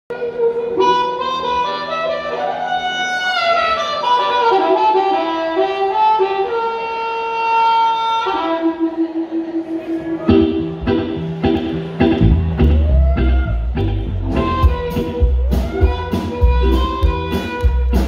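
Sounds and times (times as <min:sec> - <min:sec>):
amplified harmonica solo: 0:00.1 - 0:18.0.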